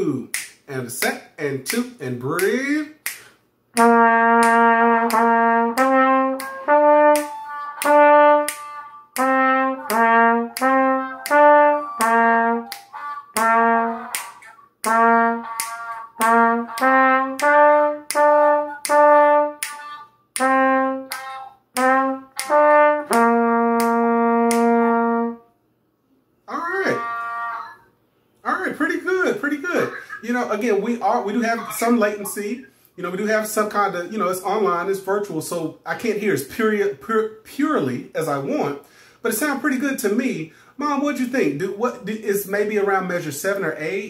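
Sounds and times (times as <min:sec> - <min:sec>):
trumpet playing simple melody: 0:03.7 - 0:25.6, 0:26.5 - 0:27.9.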